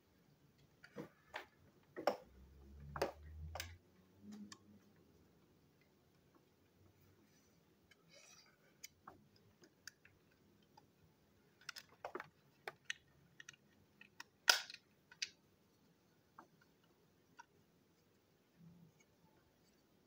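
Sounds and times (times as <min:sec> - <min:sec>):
plastic toy parts clicking: 0:11.5 - 0:15.4.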